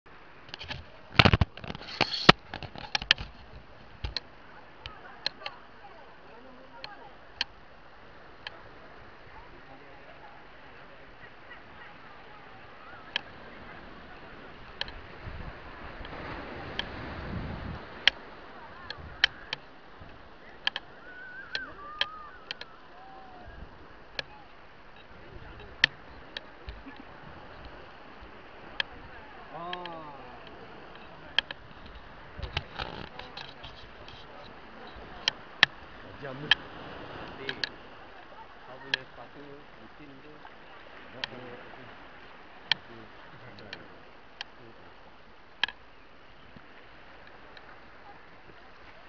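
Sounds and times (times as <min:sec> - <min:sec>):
faint wavering whistles: 0:20.9 - 0:23.5.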